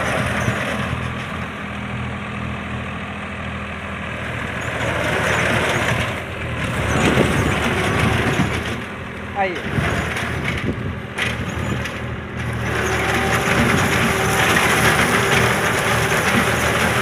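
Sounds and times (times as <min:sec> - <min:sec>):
tractor diesel engine running: 0:00.0 - 0:17.0
cutter cutting dry stalks: 0:05.0 - 0:17.0.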